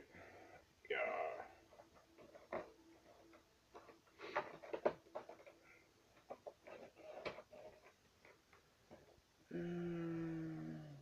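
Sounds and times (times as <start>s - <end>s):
vinyl figure handling noise: 1.7s - 9.2s.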